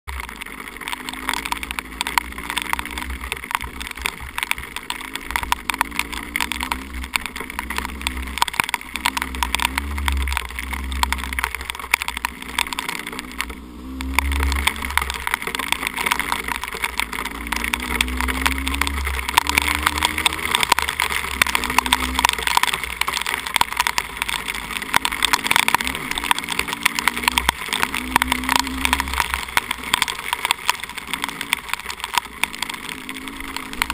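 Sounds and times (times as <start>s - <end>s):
dirt bike engine revving: 17.4s - 22.6s, 24.9s - 29.4s.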